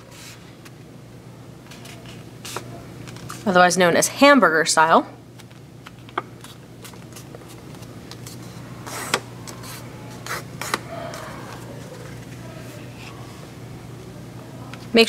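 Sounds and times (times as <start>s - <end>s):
low steady hum: 0.0s - 15.0s
paper rustling: 1.7s - 3.5s.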